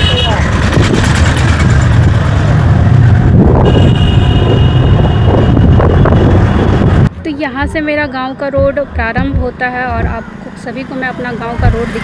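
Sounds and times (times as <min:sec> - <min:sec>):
road and vehicle noise: 0:00.0 - 0:12.0
wind buffeting microphone: 0:00.4 - 0:07.1.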